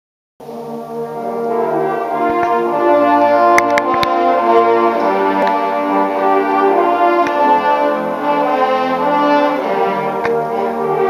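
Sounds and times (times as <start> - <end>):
trombone ensemble playing chords: 0.4 - 11.0
sharp clicks: 3.5 - 4.2.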